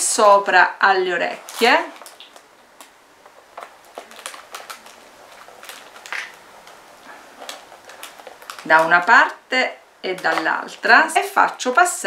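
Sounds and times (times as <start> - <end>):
paper plate crackling: 1.2 - 9.4
small clicks and rustles: 1.4 - 8.9.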